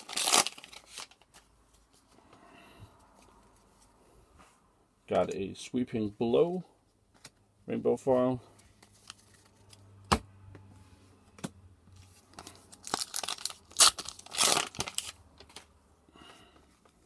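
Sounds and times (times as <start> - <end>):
foil wrapper crinkling rips: 0.0 - 1.3, 12.4 - 15.6.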